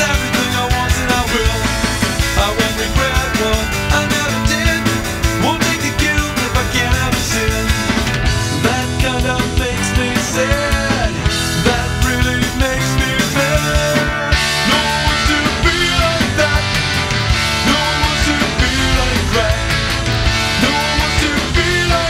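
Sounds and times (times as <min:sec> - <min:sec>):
guitar-driven rock song with drums: 0:00.0 - 0:22.0.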